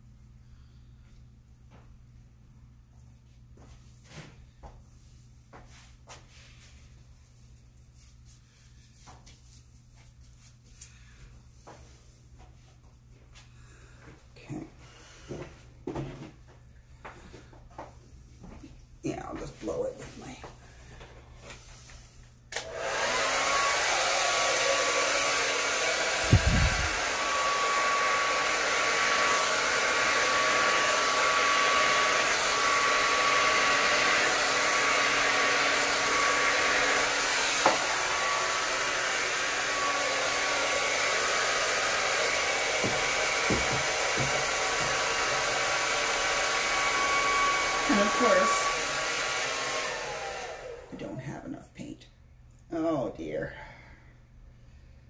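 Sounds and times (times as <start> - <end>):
hair dryer running: 13.4 - 16.2, 19.2 - 51.4.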